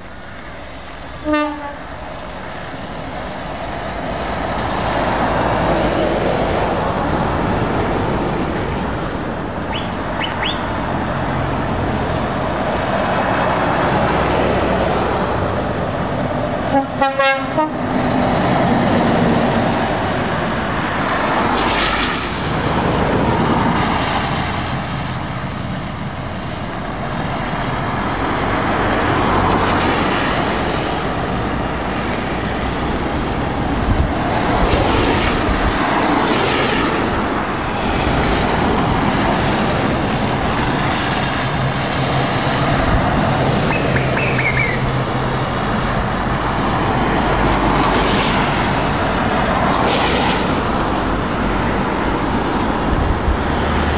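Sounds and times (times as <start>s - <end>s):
lorries driving past on wet road: 0.0s - 53.9s
air horn blast: 1.2s - 1.9s, 16.7s - 17.9s
rapid horn toots: 1.2s - 1.9s, 16.7s - 17.9s.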